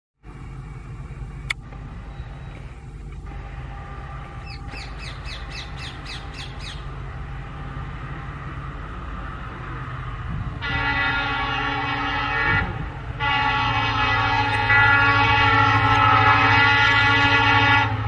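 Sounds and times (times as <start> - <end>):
diesel locomotive engines rumbling: 0.2 - 18.0
bird falling calls: 4.4 - 6.9.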